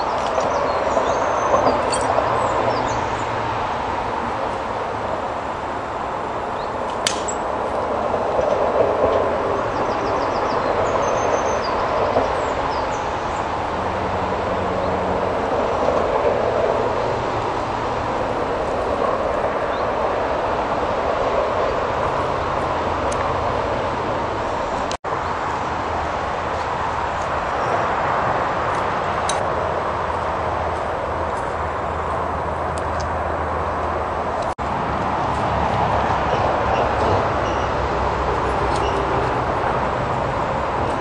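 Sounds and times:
steady rushing noise: 0:00.0 - 0:41.0
sharp click: 0:06.9 - 0:07.4
bird chirps: 0:36.7 - 0:37.8.

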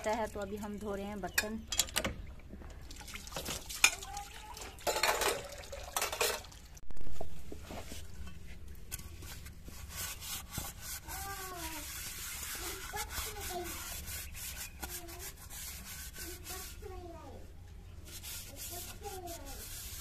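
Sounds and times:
water splashing: 0:02.8 - 0:06.8
dishes clattering: 0:04.8 - 0:06.6
metal dishes clinking: 0:04.8 - 0:06.6.

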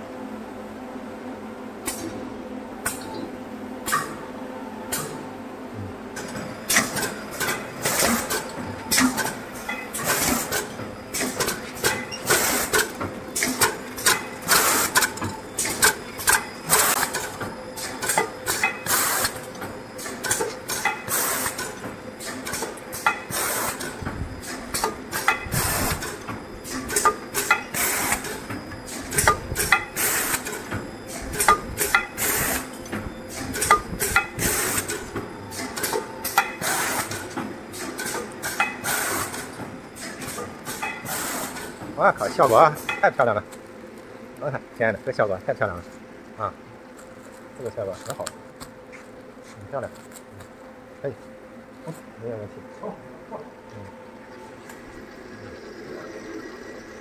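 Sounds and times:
packing machine hum: 0:00.0 - 0:57.0
mechanical clacks: 0:06.2 - 0:43.7.

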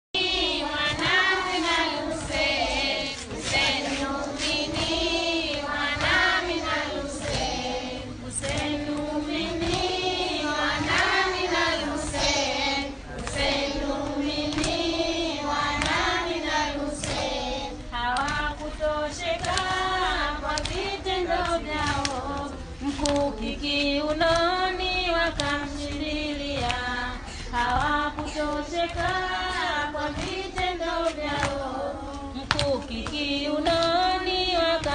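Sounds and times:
children chanting: 0:00.2 - 0:17.8.

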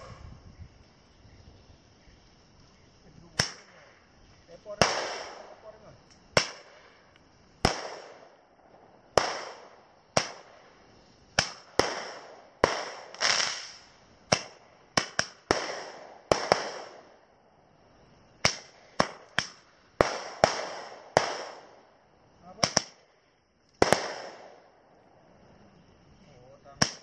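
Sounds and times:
firecrackers banging: 0:03.1 - 0:17.2, 0:18.3 - 0:24.7, 0:26.7 - 0:27.0.

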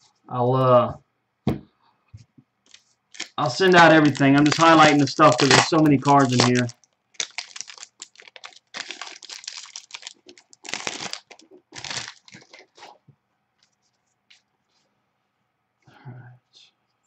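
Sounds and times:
foil wrapper crinkling: 0:02.7 - 0:13.0.

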